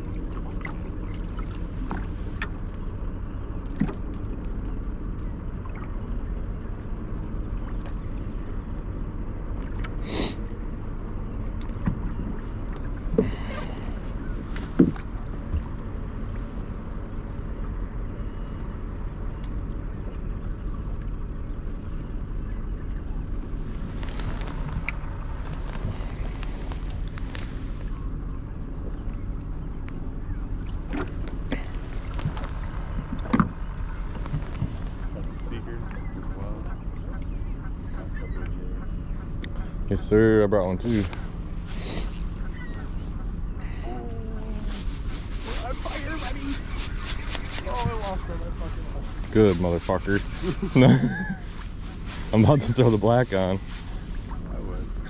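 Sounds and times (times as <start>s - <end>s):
boat engine low rumble: 0.0s - 55.0s
faint steady hum: 0.0s - 55.0s.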